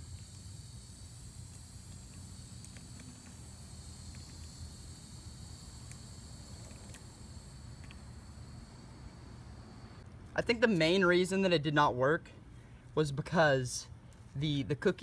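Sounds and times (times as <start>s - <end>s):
insects droning: 0.0s - 10.0s.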